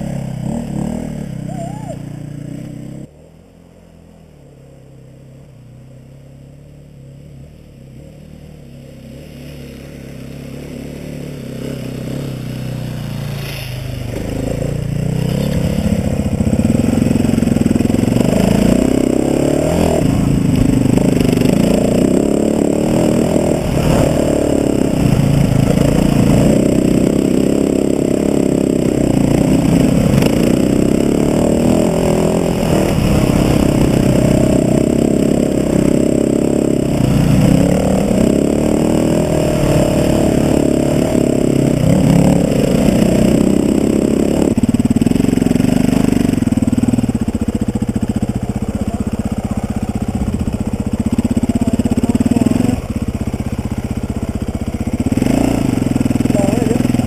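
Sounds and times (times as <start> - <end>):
dirt bike engine running: 0.0 - 57.0
bike clattering on rough trail: 15.0 - 16.0.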